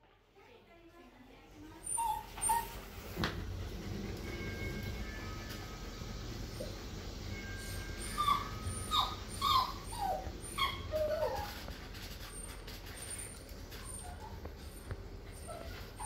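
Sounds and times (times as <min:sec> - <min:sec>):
dog whining: 0:01.8 - 0:03.0, 0:07.4 - 0:16.0.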